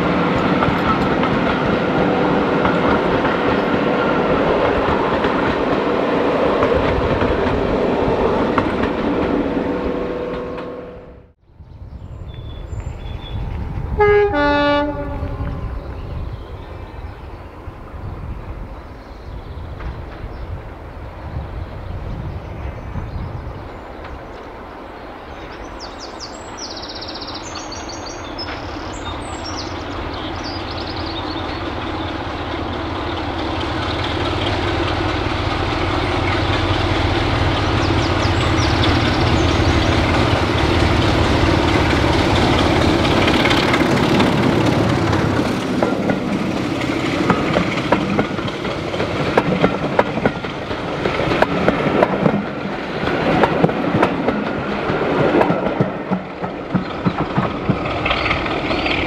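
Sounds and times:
train wheels clickety-clack: 0.0 - 10.8, 19.7 - 20.6, 25.5 - 59.0
diesel locomotive engine: 0.0 - 59.0.

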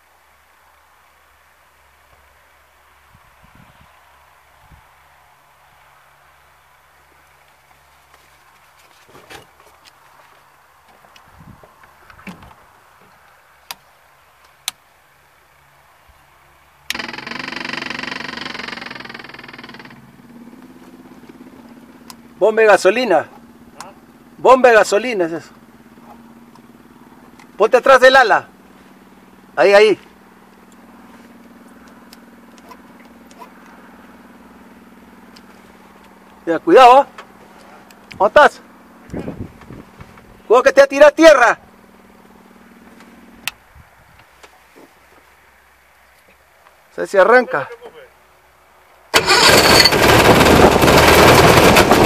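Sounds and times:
sharp clicks: 16.9 - 20.0
electric fuel pump buzzing: 16.9 - 22.2, 49.2 - 52.0.

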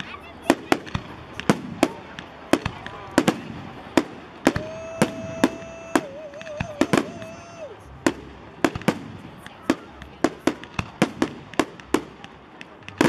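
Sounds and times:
fireworks bangs: 0.0 - 13.0.

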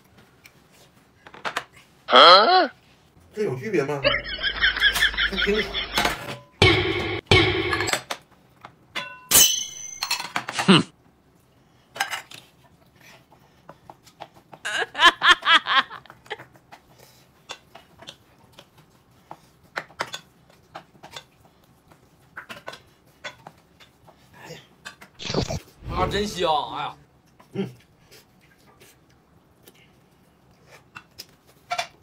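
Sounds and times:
tableware clicking and clinking: 7.6 - 8.2, 9.0 - 10.8
brief vocal burst: 25.2 - 26.1.

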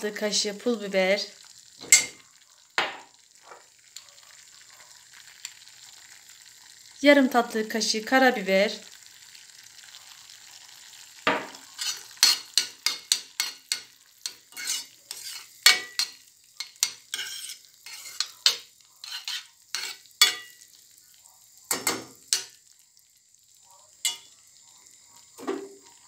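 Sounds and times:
metal spoon scraping a pan: 1.8 - 2.2, 11.4 - 20.7, 21.7 - 22.6, 24.0 - 24.3.

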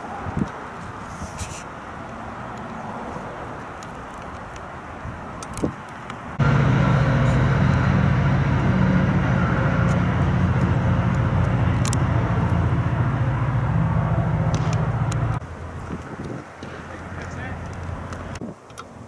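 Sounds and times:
vehicle engine running: 6.4 - 15.4.

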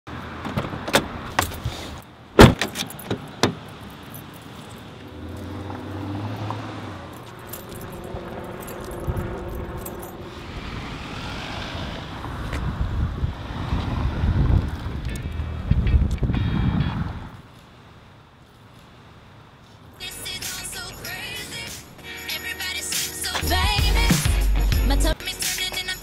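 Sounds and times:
outdoor background noise: 0.1 - 26.0
car door shutting: 0.4 - 1.8, 2.4 - 3.6
keys jangling: 2.6 - 5.5, 7.1 - 10.3.

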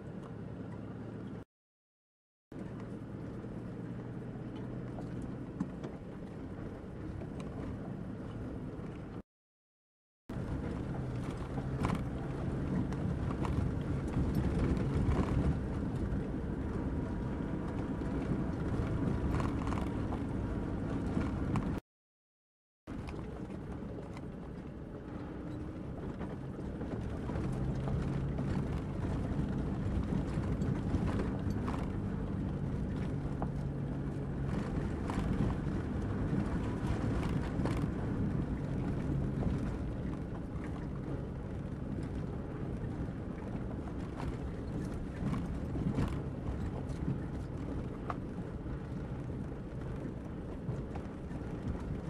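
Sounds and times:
vehicle engine running: 22.9 - 52.0.

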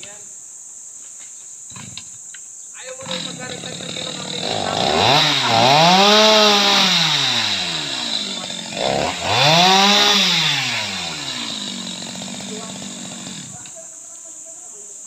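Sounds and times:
chainsaw revving: 3.0 - 13.8.

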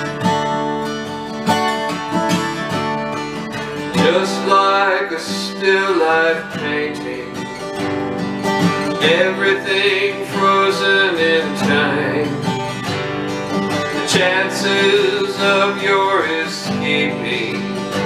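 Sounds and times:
acoustic guitar strumming: 0.0 - 18.0
man singing: 3.8 - 7.7, 8.8 - 12.8, 13.8 - 18.0.

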